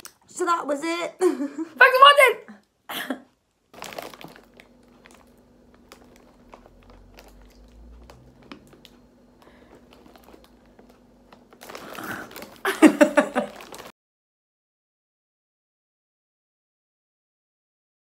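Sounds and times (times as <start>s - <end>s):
faint steady hum: 0.0s - 13.9s
plastic snack packets crinkling: 3.6s - 13.9s.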